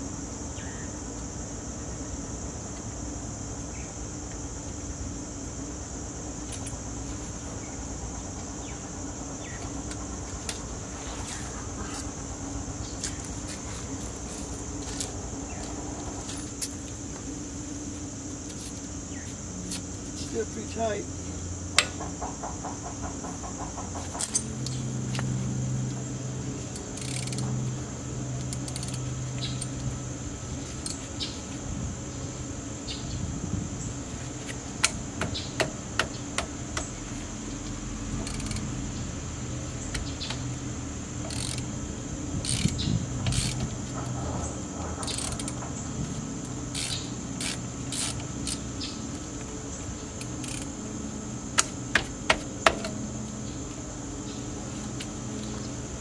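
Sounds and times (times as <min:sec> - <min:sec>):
steady high-pitched whine: 0:00.0 - 0:56.0
metallic clicks of hand tools: 0:24.2 - 0:25.3.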